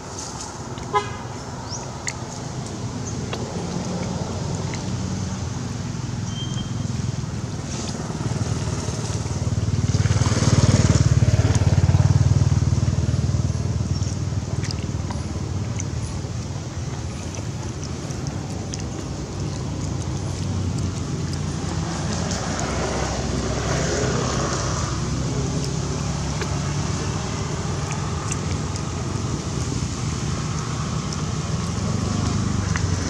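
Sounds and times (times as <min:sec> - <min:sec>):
vehicle engine passing: 0:06.9 - 0:33.0.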